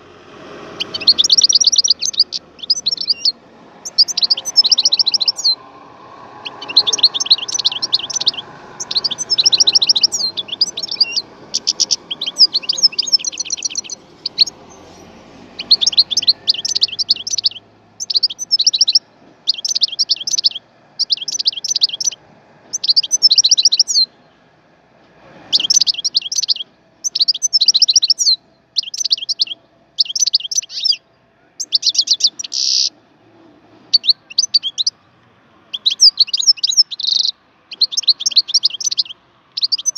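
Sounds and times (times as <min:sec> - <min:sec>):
finch singing: 0:00.6 - 0:24.4, 0:25.4 - 0:33.0, 0:33.9 - 0:35.0, 0:35.7 - 0:39.9.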